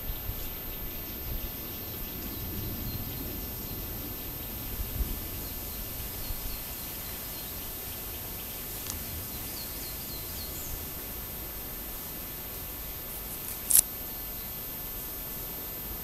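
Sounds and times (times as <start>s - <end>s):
steady hiss: 0.0s - 16.0s
sharp click: 13.4s - 13.9s.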